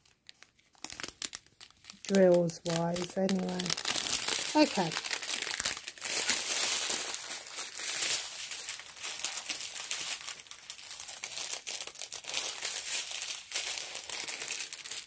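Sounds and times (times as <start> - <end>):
plastic packaging crinkling: 0.0 - 15.0.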